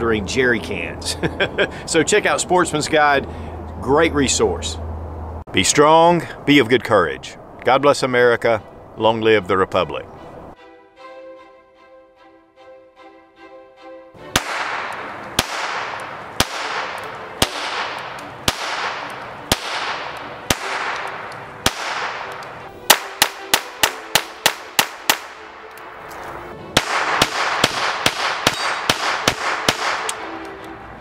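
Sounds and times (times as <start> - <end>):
background music: 7.9 - 31.0
pistol shots with echo: 14.3 - 25.4, 26.8 - 30.3.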